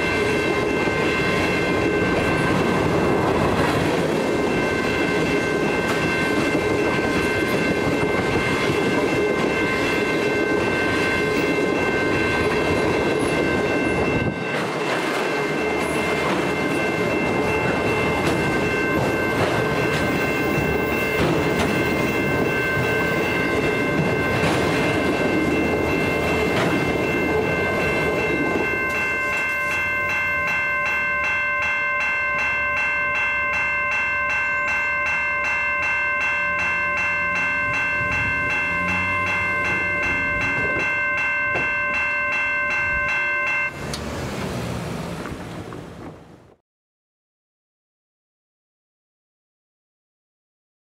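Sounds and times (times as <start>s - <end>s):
train wheels clattering on rails: 0.0s - 32.9s, 34.7s - 42.2s, 43.6s - 46.5s
crossing warning bell ringing: 0.0s - 45.8s.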